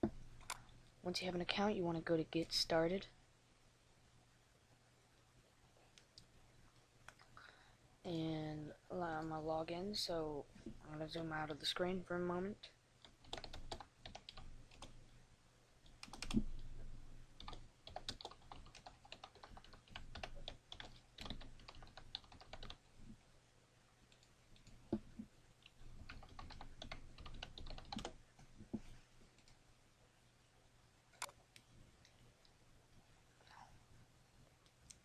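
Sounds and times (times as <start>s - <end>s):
typing on keyboard: 13.0s - 14.9s, 15.9s - 16.6s, 17.4s - 22.8s, 26.0s - 28.2s.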